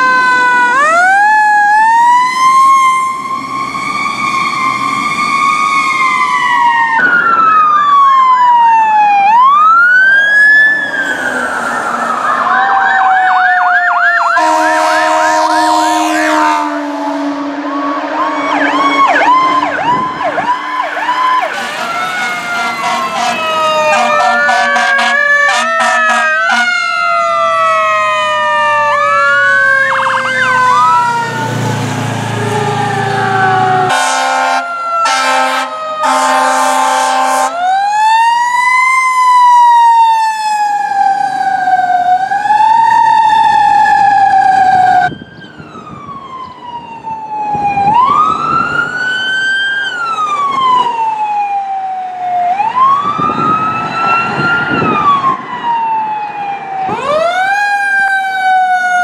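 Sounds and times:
electronic sirens wailing and yelping: 0.0s - 59.0s
air horn blasts: 14.4s - 20.0s, 21.4s - 26.9s, 33.9s - 37.6s.

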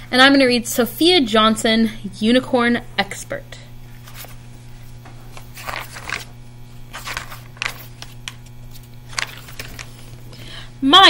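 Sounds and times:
steady low hum: 0.0s - 11.0s
book pages turning: 3.8s - 10.3s.

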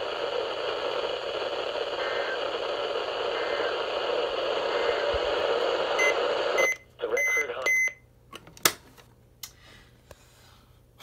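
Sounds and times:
radio static hiss: 0.0s - 7.7s.

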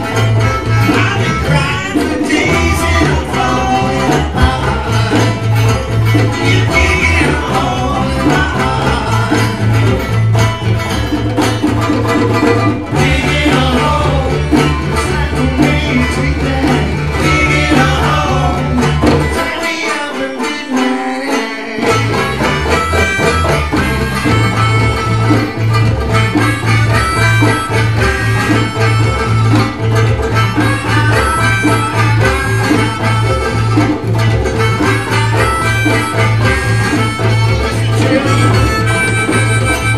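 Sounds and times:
low bass line: 0.0s - 11.8s, 12.8s - 19.3s, 22.0s - 39.9s
acoustic guitar: 0.0s - 39.9s
banjo: 0.0s - 39.9s
hand drum: 0.0s - 39.9s
man singing: 0.7s - 10.1s, 12.8s - 22.5s, 35.0s - 39.9s.

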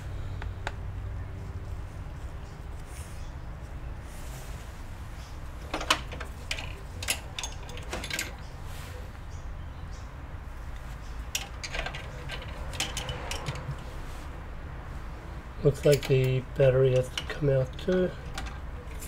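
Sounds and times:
small tools clicking and tapping: 5.6s - 8.5s, 10.7s - 13.9s, 15.7s - 19.0s.

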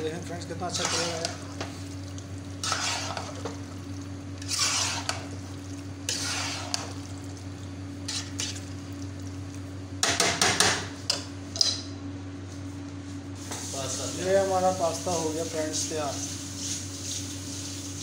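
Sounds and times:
steady low hum: 0.0s - 18.0s
metal spatula scraping pasta in saucepan: 0.6s - 1.4s, 2.6s - 3.5s, 4.4s - 5.3s, 6.1s - 6.9s, 8.1s - 8.6s.

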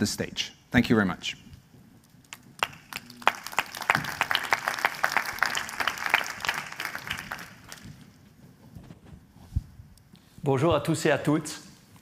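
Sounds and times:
audience applauding: 2.3s - 8.0s.

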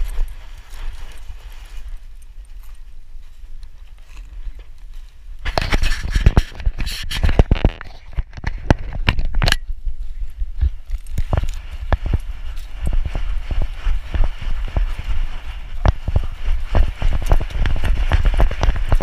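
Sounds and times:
camera scraping against fur and straps: 0.0s - 2.8s, 3.8s - 9.6s, 10.6s - 19.0s
low rumble: 9.6s - 19.0s.

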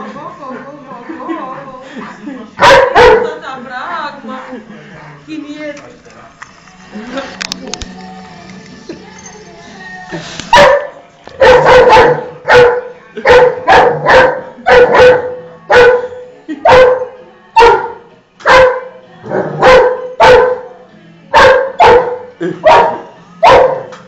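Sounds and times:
dog barking loudly: 2.6s - 3.4s, 10.5s - 16.1s, 19.6s - 20.6s, 21.4s - 23.8s.

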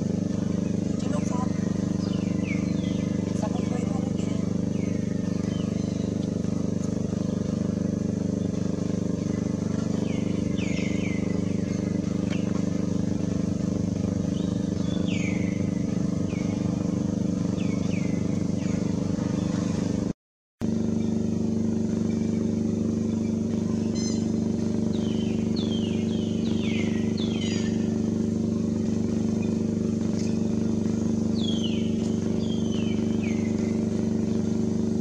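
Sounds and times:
motor droning: 0.0s - 35.0s.

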